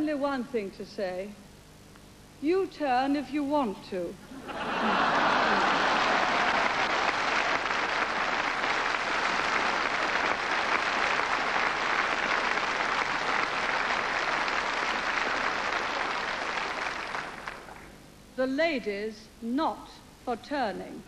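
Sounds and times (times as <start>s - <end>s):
audience applauding: 4.6s - 17.9s.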